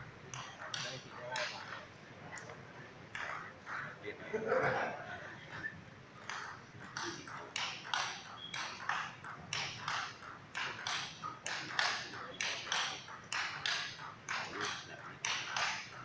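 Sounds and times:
table tennis ball clicking: 0.3 - 1.8, 2.4 - 3.5, 6.2 - 16.0.

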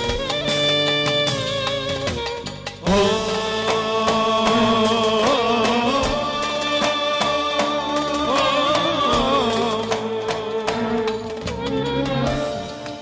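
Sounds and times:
clarinet melody: 0.0 - 2.3
folk band music: 0.0 - 13.0.

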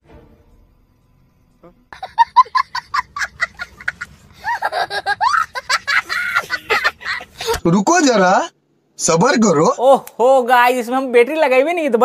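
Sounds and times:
person laughing hard: 2.0 - 7.6.

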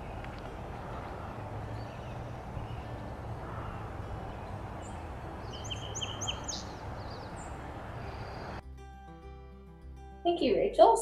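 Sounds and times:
low outdoor rumble: 0.0 - 8.6
sparrow singing: 0.0 - 8.6.

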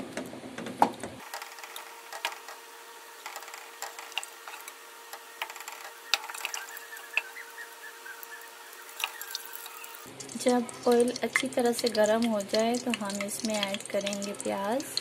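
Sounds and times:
faint steady hum: 1.3 - 15.0
small clicks and crackles: 3.2 - 7.3.

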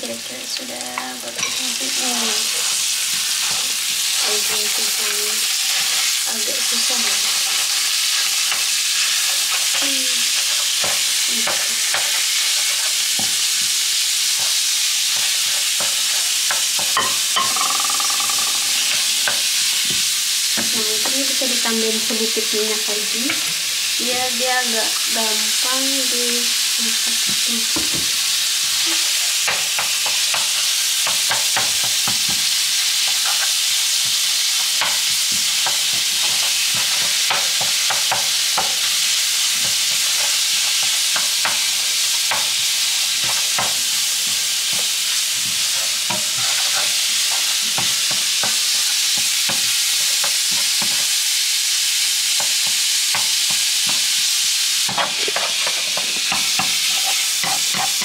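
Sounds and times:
meat sizzling in a frying pan: 0.0 - 58.0
tongs scraping a pan: 0.9 - 20.0, 28.3 - 51.1, 54.9 - 58.0.

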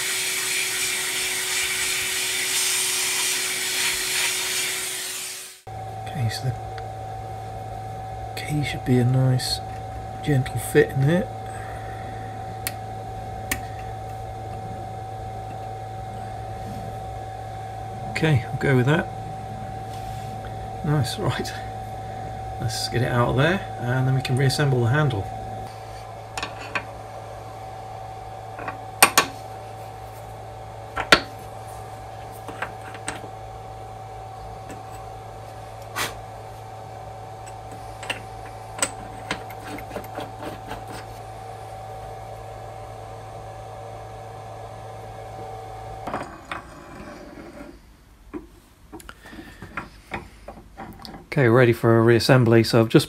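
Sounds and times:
steady machine hum: 0.0 - 53.0.

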